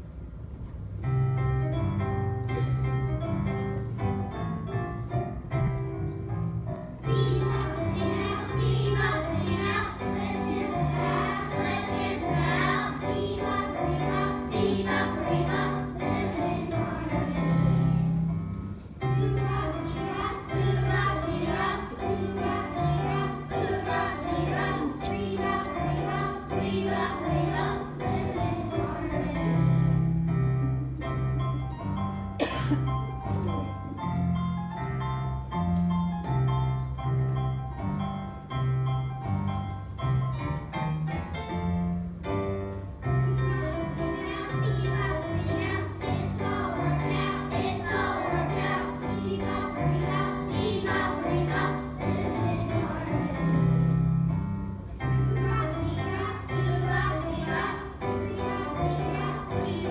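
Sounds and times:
children's choir singing: 0:06.8 - 0:34.2, 0:42.8 - 0:59.9.

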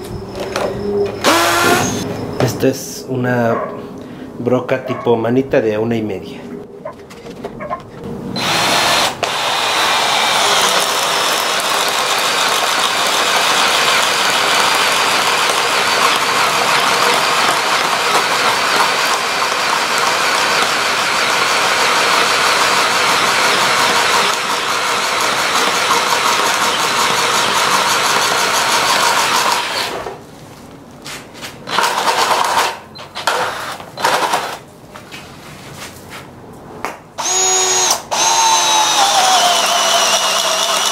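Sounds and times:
power drill boring into wood: 0:01.2 - 0:02.0, 0:08.4 - 0:30.1, 0:31.7 - 0:32.6, 0:37.2 - 0:40.9.

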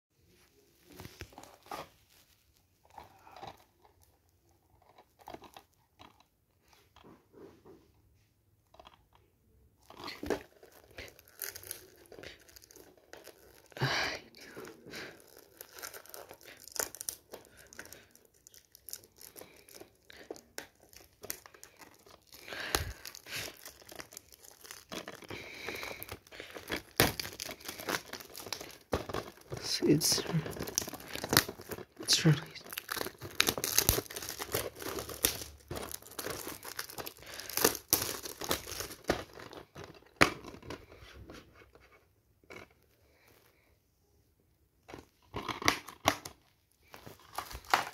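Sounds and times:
shrink wrap crinkling: 0:09.8 - 0:41.4, 0:44.9 - 0:47.9.

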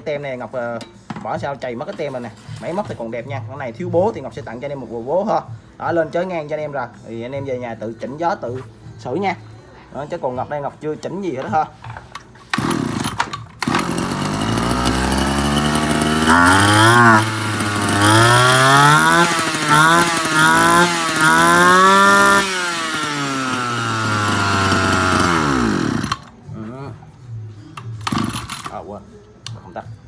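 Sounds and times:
brush cutter engine revving: 0:12.5 - 0:26.3, 0:28.0 - 0:28.8.

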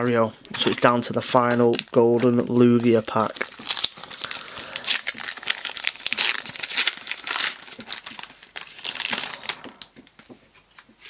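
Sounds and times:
foil wrapper crinkling and tearing: 0:01.7 - 0:10.3.

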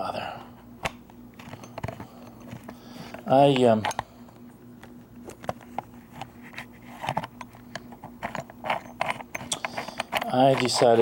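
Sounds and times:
small clicks and scrapes: 0:05.2 - 0:11.0.

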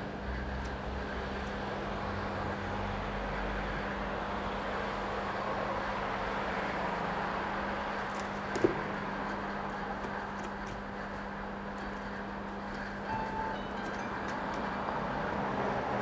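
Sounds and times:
constant low hum: 0:00.0 - 0:16.0.

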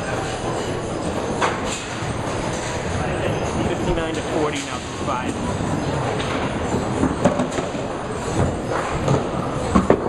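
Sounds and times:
pinsetter machinery: 0:00.0 - 0:07.6
balls rolling on wooden lanes: 0:00.4 - 0:10.0.

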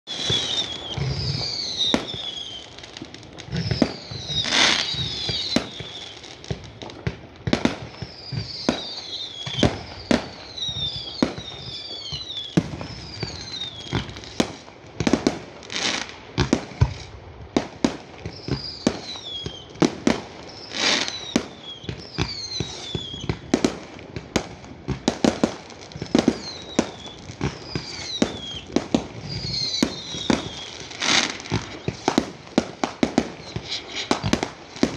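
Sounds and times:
falling firework whistles: 0:00.1 - 0:34.9
fireworks bangs and cracks: 0:00.1 - 0:34.9.

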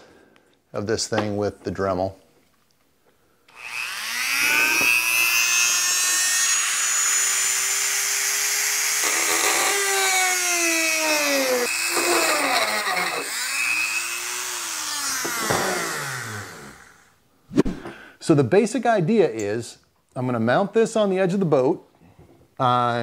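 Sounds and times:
rotary tool cutting with high whine: 0:03.5 - 0:17.2.

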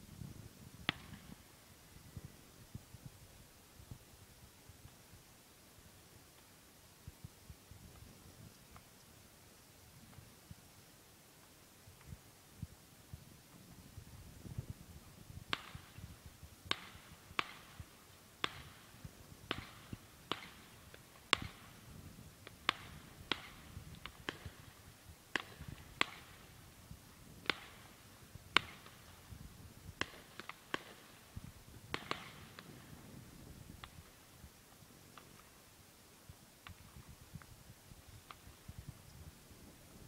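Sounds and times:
distant fireworks bangs: 0:31.9 - 0:33.0.

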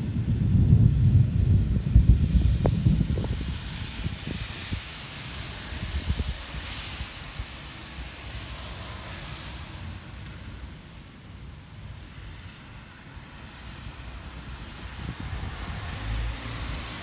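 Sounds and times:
thunder rumbling: 0:00.0 - 0:07.5
rain hissing: 0:00.0 - 0:17.0.

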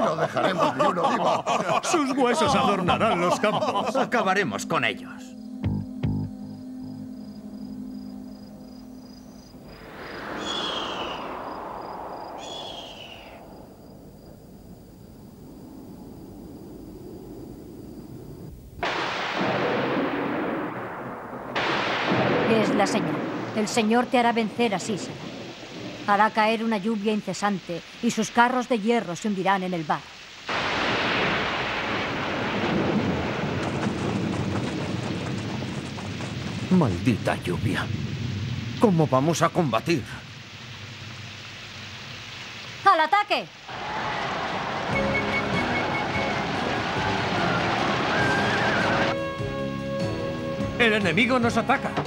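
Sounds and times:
wind: 0:00.0 - 0:04.1, 0:06.3 - 0:50.0
heavy rain downpour: 0:00.0 - 0:04.3, 0:09.8 - 0:13.8, 0:18.8 - 0:49.2
cartoon wind gust: 0:09.6 - 0:14.8
short falling whistles: 0:09.8 - 0:13.9, 0:44.8 - 0:49.1.

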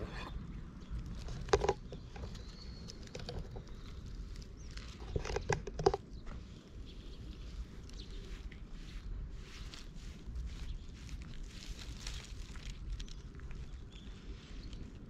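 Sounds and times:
brush rustling through fur: 0:07.0 - 0:15.0.

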